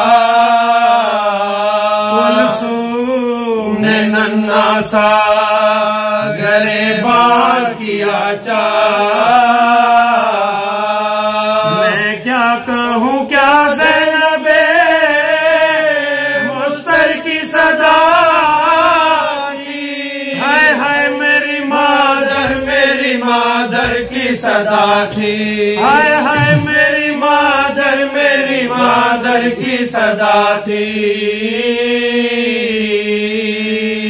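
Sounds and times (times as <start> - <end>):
men chanting an elegy: 0.0 - 34.0
low steady held voice: 25.8 - 27.1.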